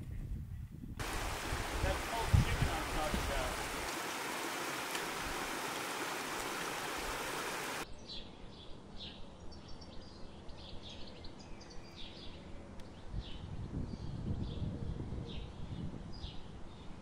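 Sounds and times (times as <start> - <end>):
stream rushing over gravel: 1.0 - 7.8.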